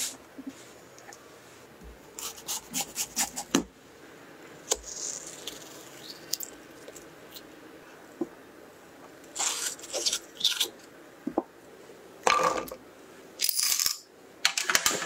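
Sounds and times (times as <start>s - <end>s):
melon baller scraping melon flesh: 9.4s - 10.7s.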